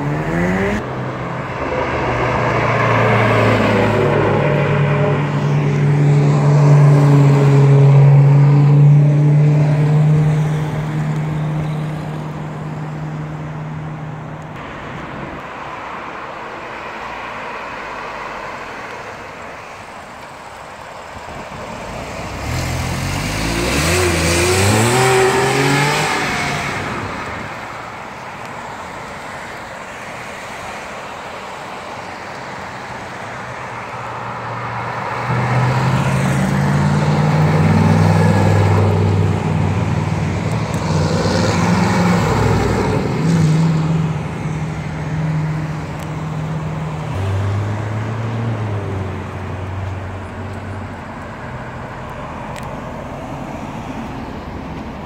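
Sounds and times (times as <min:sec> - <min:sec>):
car accelerating past: 0:00.0 - 0:11.9, 0:21.8 - 0:27.5
sports cars driving past: 0:00.0 - 0:55.0.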